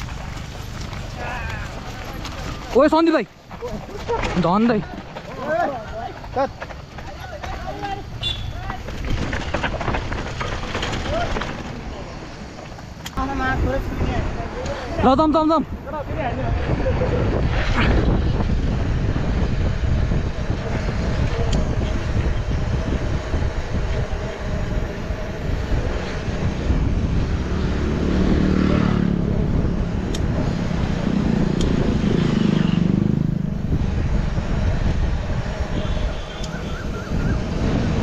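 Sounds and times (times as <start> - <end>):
mountain bike rattling: 0.0 - 15.2, 15.9 - 28.0
wind buffeting the microphone: 13.2 - 38.0.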